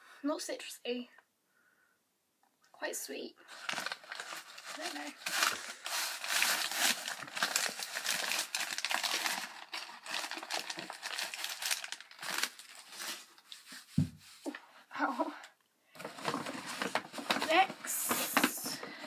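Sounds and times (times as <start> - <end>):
packaging crinkling and rustling: 3.5 - 13.9, 16.0 - 19.0.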